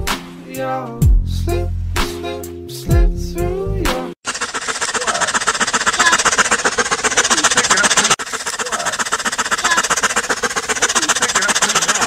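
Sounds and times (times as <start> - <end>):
dog panting: 4.2 - 12.0.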